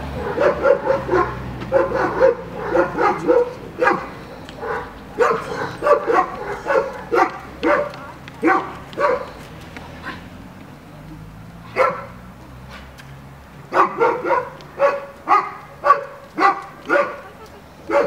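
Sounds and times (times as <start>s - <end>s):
dog barking: 0.2s - 9.4s, 11.7s - 12.2s, 13.7s - 17.3s.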